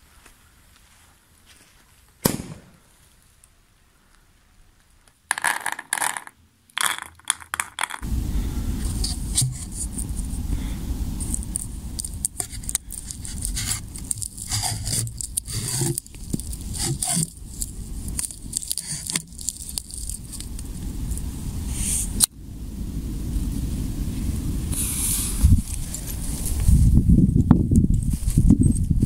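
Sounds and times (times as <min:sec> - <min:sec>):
low background noise: 0:00.0 - 0:24.7
scrapes and knocks of shell: 0:05.3 - 0:08.0, 0:11.2 - 0:20.5
firework stars clattering: 0:11.1 - 0:22.3.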